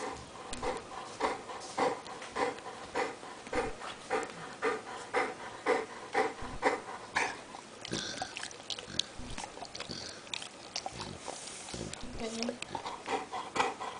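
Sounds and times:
dog snorting and snuffling: 0.0 - 13.9
dog licking and lip-smacking: 5.7 - 13.9.

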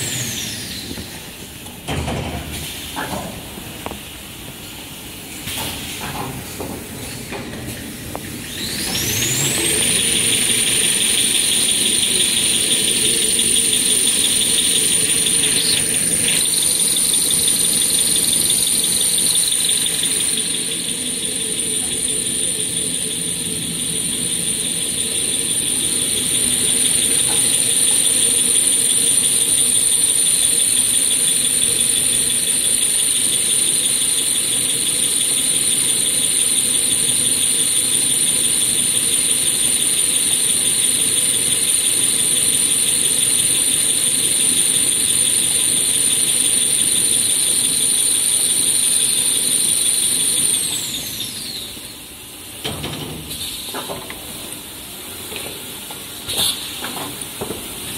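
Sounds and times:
machine high-pitched whine: 0.0 - 57.9
rapid machine whirr: 7.2 - 51.6.

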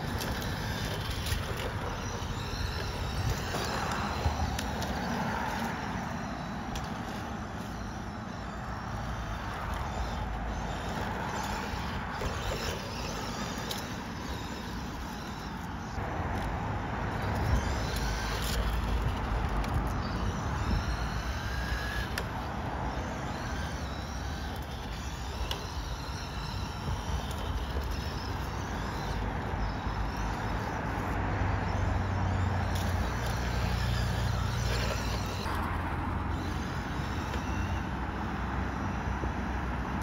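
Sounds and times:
electric motor whining: 0.0 - 40.0
outdoor rumble: 0.0 - 40.0.

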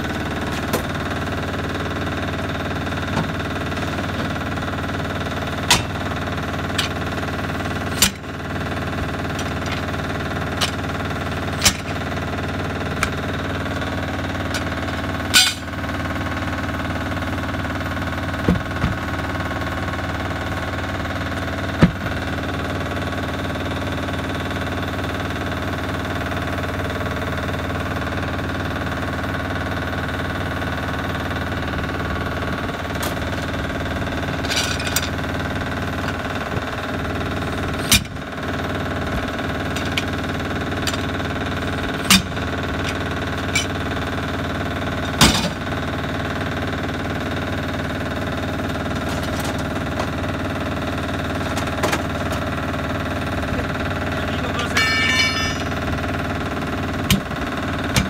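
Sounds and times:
tire tools clanking on metal: 0.0 - 1.2, 2.3 - 16.4, 32.8 - 35.3, 37.5 - 38.2, 39.0 - 44.2, 48.9 - 50.2, 53.6 - 55.9.

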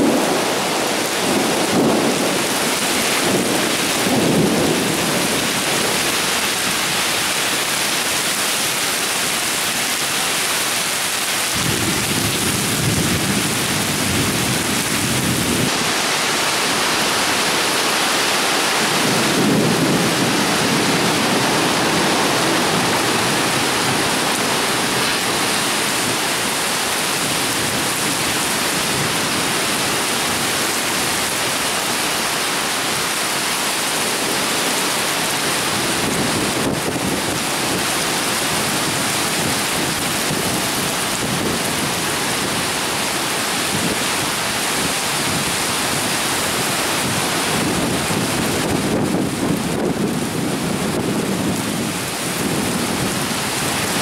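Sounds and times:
low thunder rumbling: 0.0 - 6.4, 18.8 - 29.6
torrential rain pouring: 0.0 - 54.0.

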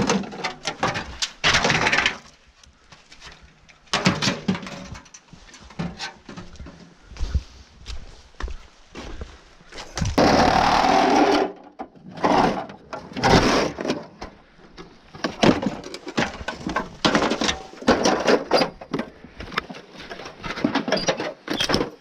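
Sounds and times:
knocks and clatter of parts: 0.0 - 7.0, 10.0 - 22.0
loud rattling noise: 10.2 - 11.6.

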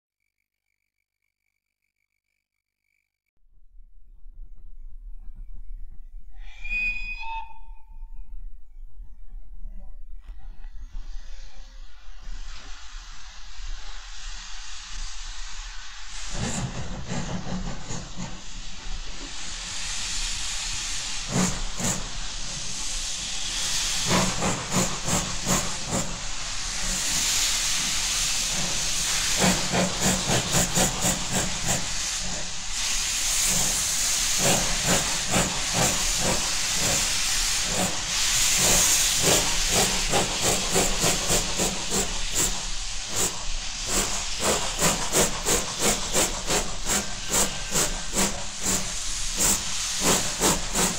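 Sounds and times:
steam locomotive exhaust beats: 4.0 - 50.9
steam hissing: 10.6 - 50.9.

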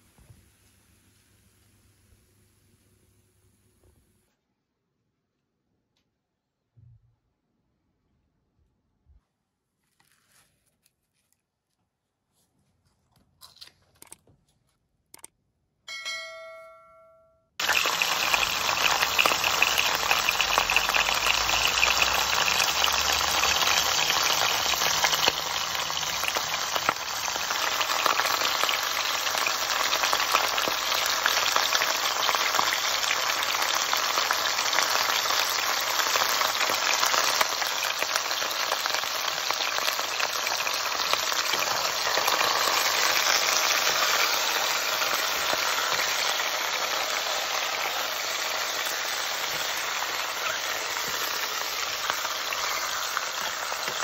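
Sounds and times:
chicken and onion sizzling in oil: 17.6 - 54.0.

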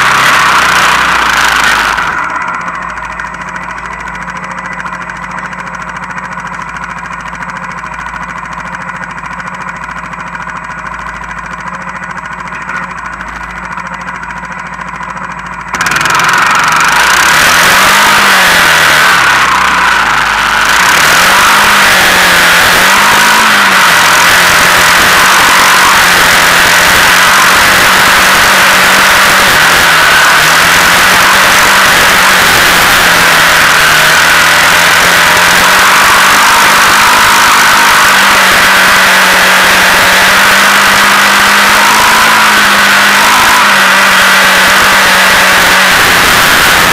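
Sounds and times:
quad engine revving: 0.0 - 46.9
rushing noise: 15.8 - 46.9.

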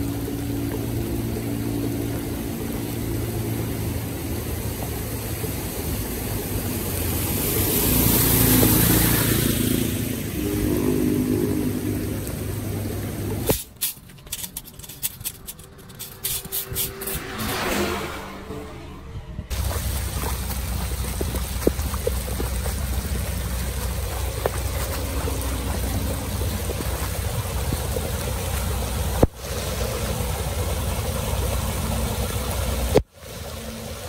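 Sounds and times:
vehicle engine running: 0.0 - 34.0.

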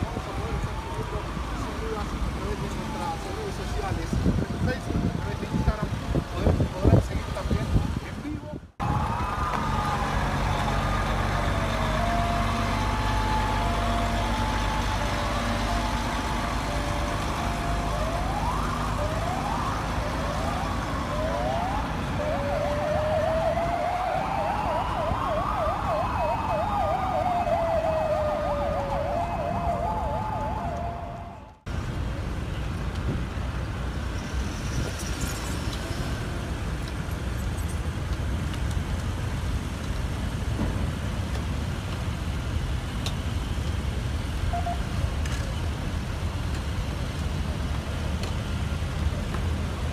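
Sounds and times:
sirens wailing and yelping: 0.0 - 7.2, 8.8 - 31.7
diesel truck engine running: 8.9 - 23.5.

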